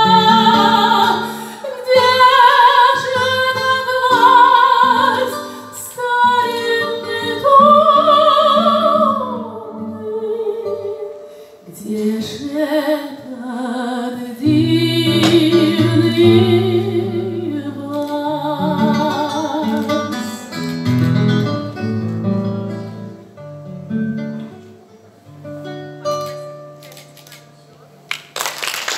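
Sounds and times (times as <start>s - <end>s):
woman singing: 0.0s - 20.5s
acoustic guitar: 0.0s - 28.1s.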